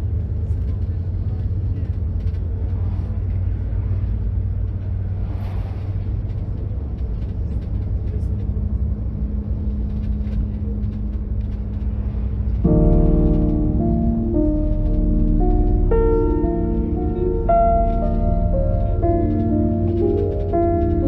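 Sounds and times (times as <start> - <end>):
engine and road rumble: 0.0 - 21.0
passing vehicle whoosh: 2.7 - 7.0
steady low hum: 6.0 - 21.0.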